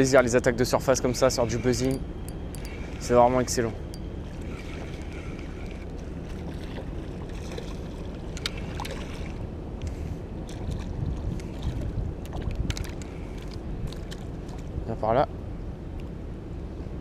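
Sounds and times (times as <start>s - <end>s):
wind rumble on microphone: 0.0s - 17.0s
fishing reel winding: 1.2s - 5.9s
sharp clicks and ticks: 1.8s - 3.0s
lapping water: 4.3s - 14.8s.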